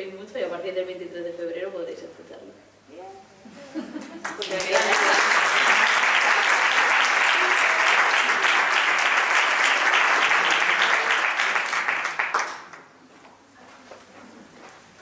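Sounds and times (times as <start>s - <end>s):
audience applause: 4.2s - 12.9s.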